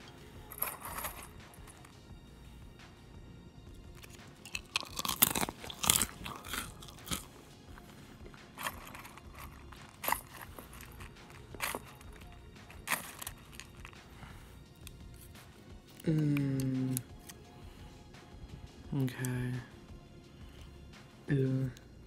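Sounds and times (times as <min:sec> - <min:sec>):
chopsticks in dry cereal: 0:00.0 - 0:02.0, 0:04.0 - 0:17.4.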